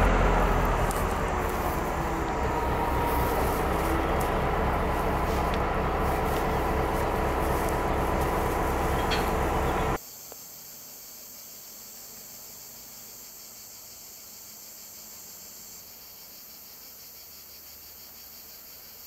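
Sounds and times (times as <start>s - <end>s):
locomotive engines idling: 0.0s - 10.0s
insects chirring: 0.0s - 19.0s.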